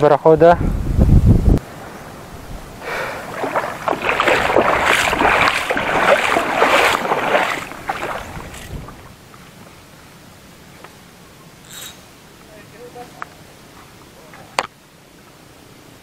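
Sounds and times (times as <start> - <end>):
seawater splashing: 1.7 - 9.9.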